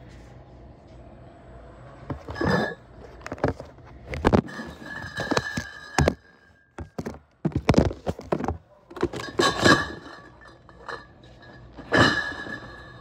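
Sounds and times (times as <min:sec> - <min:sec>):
glass bottles clinking: 0:04.4 - 0:13.0
cardboard cases thunking: 0:06.8 - 0:09.8.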